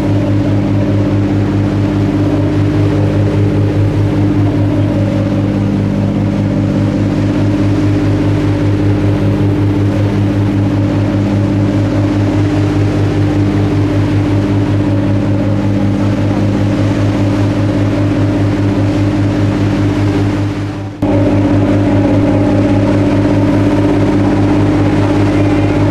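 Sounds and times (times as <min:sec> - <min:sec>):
boat diesel engines droning: 0:00.0 - 0:25.9.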